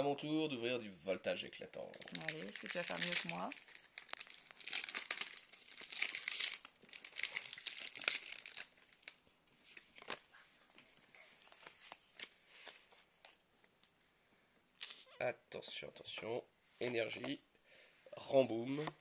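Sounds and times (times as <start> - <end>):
foil pack crinkling and tearing: 1.8 - 9.2.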